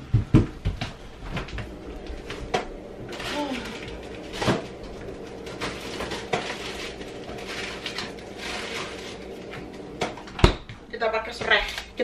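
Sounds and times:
containers clattering in refrigerator: 2.4s - 10.8s.

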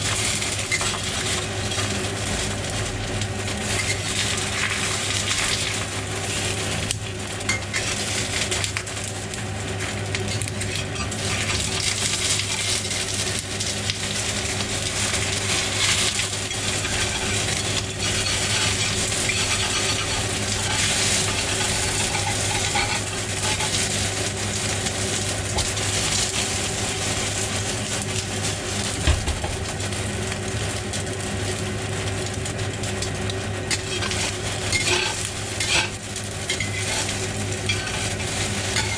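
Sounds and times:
egg sizzling in oil: 0.0s - 38.9s
metal spatula scraping wok: 3.6s - 6.6s, 10.6s - 13.1s, 14.4s - 26.7s, 33.7s - 38.9s.

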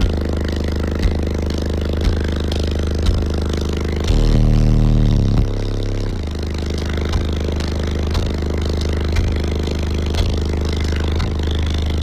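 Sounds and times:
deep subwoofer bass notes: 0.0s - 12.0s.

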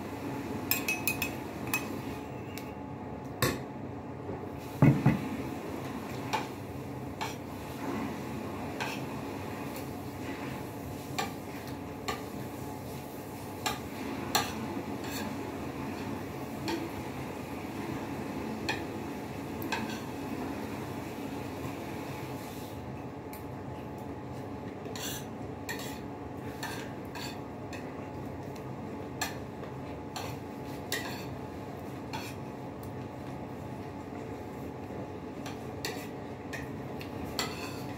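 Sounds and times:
low background hum: 0.0s - 37.9s
cutlery clinking on a plate: 0.7s - 1.9s.

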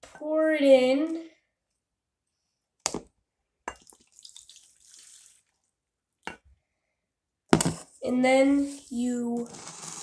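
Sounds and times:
water trickling and splashing: 3.8s - 5.6s.

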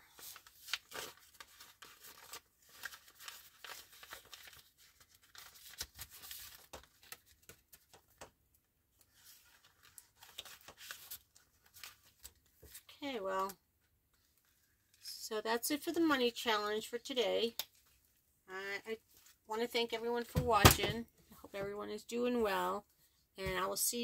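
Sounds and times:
plastic and paper rustling: 0.0s - 8.3s, 8.9s - 15.1s.

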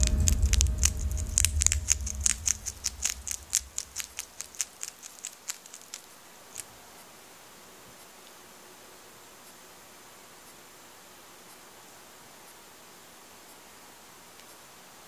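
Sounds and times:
low rumble: 0.0s - 4.4s
hedgehog chewing: 0.0s - 7.0s.

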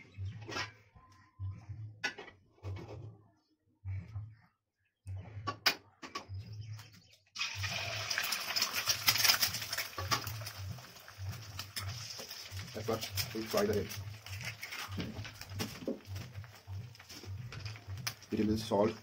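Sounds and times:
eggs sizzling in hot oil: 7.4s - 19.0s.

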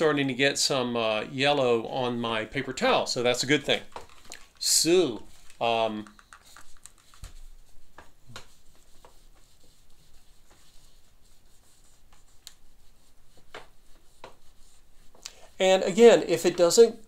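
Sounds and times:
paper towel scrubbing metal: 7.0s - 16.9s.

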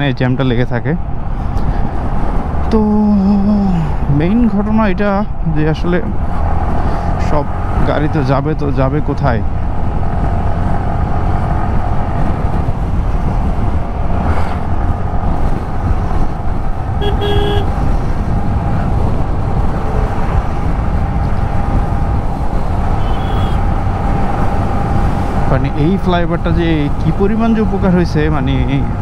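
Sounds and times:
wind and road rumble: 0.0s - 29.0s
motorcycle running: 5.9s - 29.0s
vehicle horn beeping: 17.0s - 17.8s, 23.0s - 23.6s.

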